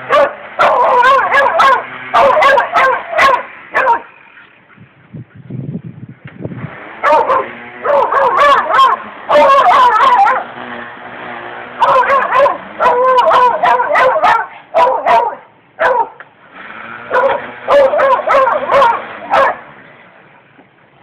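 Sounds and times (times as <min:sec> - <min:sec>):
dog barking and yelping: 0:00.0 - 0:04.2, 0:07.0 - 0:10.5, 0:11.8 - 0:16.2, 0:17.1 - 0:19.7
string trimmer: 0:00.0 - 0:04.5, 0:06.2 - 0:15.0, 0:15.9 - 0:20.6.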